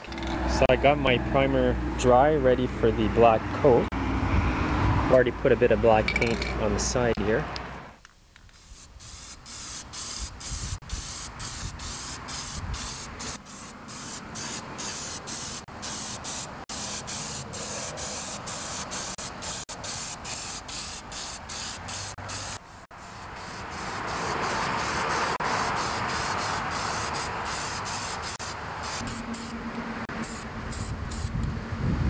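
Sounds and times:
spray paint can hissing: 0:08.5 - 0:29.5, 0:30.2 - 0:31.3.

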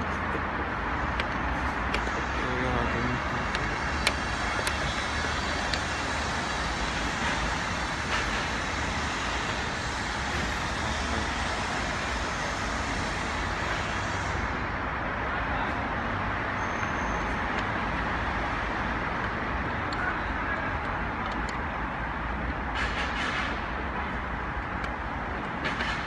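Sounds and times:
steady rushing noise: 0:00.0 - 0:16.4.

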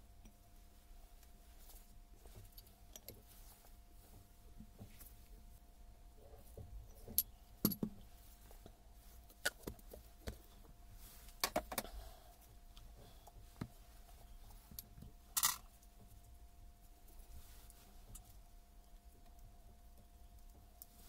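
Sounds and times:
metal parts clinking and knocking: 0:15.4 - 0:15.7.

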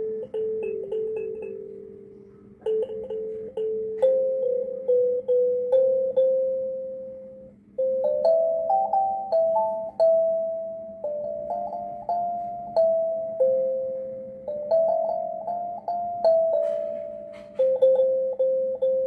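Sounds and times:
kalimba notes: 0:00.0 - 0:19.0.

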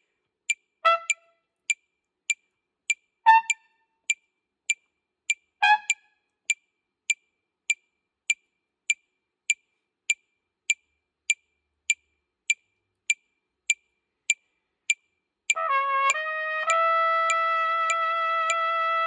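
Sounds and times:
metronome clicking: 0:00.9 - 0:09.0, 0:11.9 - 0:18.8
short trumpet note: 0:15.6 - 0:19.0.

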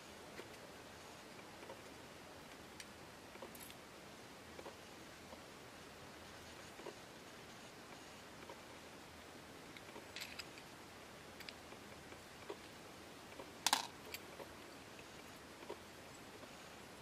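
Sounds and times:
small brass parts clicking: 0:09.8 - 0:10.7, 0:13.6 - 0:14.2.

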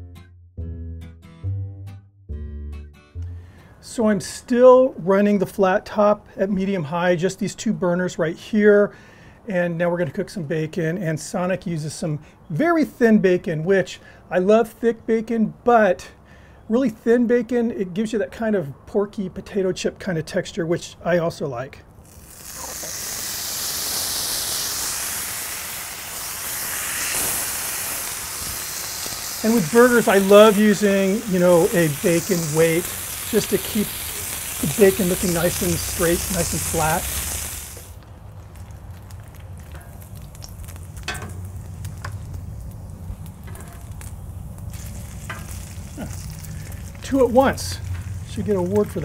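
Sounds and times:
bacon sizzling on a griddle: 0:22.0 - 0:49.0.

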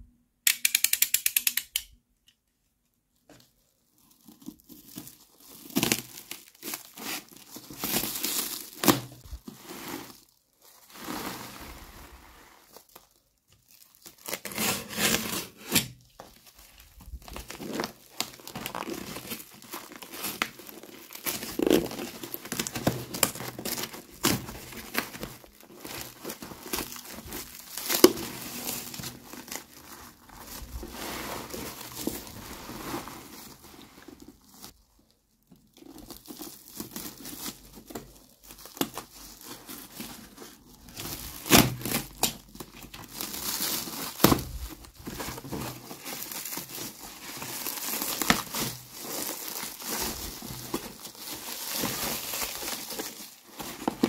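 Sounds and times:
plastic wrap crinkling: 0:03.3 - 0:54.0
cardboard tearing: 0:04.4 - 0:10.3, 0:13.8 - 0:16.0, 0:17.2 - 0:33.6, 0:35.9 - 0:54.0.

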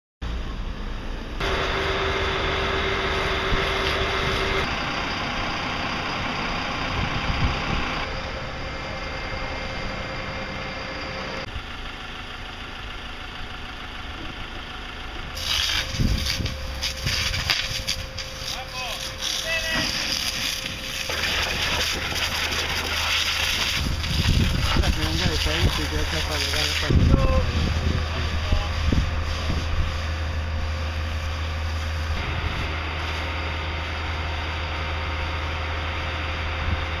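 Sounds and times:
fire truck engine and pump: 0:00.2 - 0:37.0
hose jet spraying water: 0:15.4 - 0:34.1.

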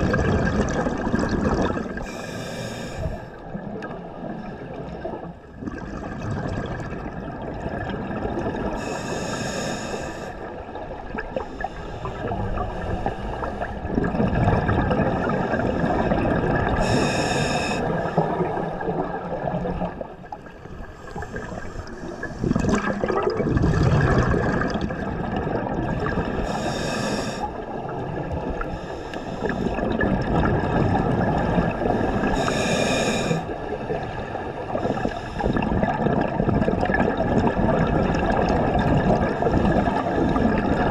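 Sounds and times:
underwater bubbling gurgle: 0:00.0 - 0:40.9
regulator breath hiss: 0:02.1 - 0:03.3, 0:08.8 - 0:10.4, 0:16.8 - 0:17.9, 0:26.5 - 0:27.5, 0:32.3 - 0:33.5.

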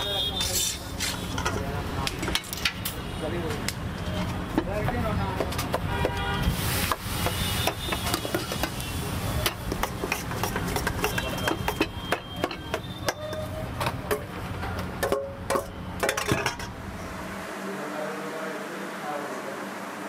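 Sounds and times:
food knocking in a steel bowl: 0:09.4 - 0:14.3.

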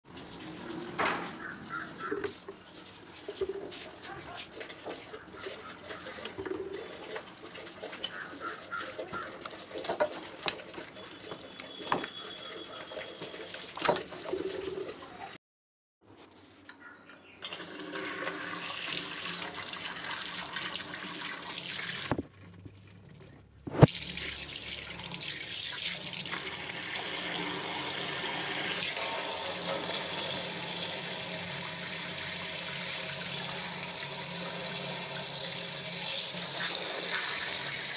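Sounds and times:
water pouring into steel bowl: 0:23.8 - 0:37.9.

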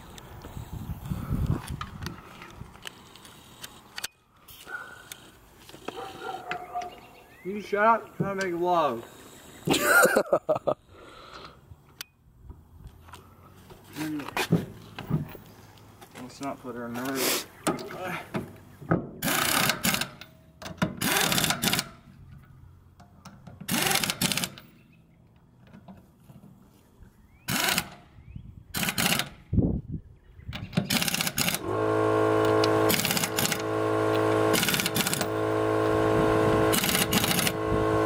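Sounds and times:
pneumatic impact wrench hammering: 0:19.2 - 0:22.1, 0:23.6 - 0:24.8, 0:27.5 - 0:28.1, 0:28.7 - 0:29.4, 0:30.6 - 0:38.0.

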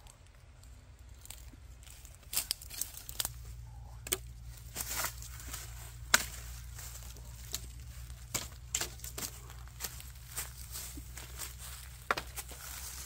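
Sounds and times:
twigs snapping: 0:00.0 - 0:13.0
footsteps crunching dry leaves: 0:00.6 - 0:03.6, 0:04.4 - 0:13.0
sharp crack: 0:06.0 - 0:06.5.

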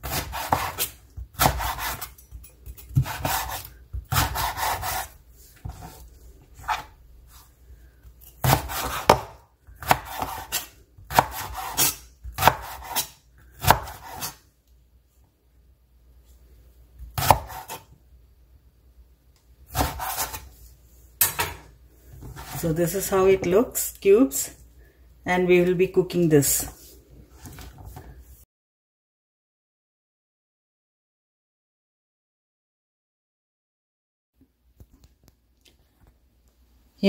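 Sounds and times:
knife chopping on wooden board: 0:00.0 - 0:02.2, 0:02.9 - 0:06.0, 0:08.4 - 0:14.4, 0:17.2 - 0:17.8, 0:19.7 - 0:20.5.

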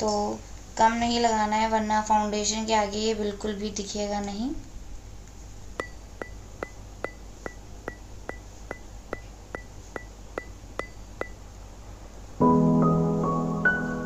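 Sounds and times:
low steady hum: 0:00.0 - 0:14.0
clock ticking with high ping: 0:05.8 - 0:11.4.

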